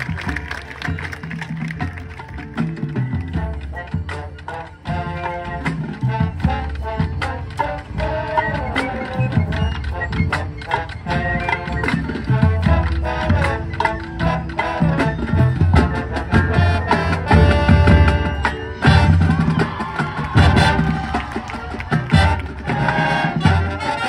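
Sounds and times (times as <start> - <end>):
snare and tenor drums: 0.0 - 24.0
brass chords: 3.2 - 9.2, 12.3 - 19.8, 20.4 - 24.0.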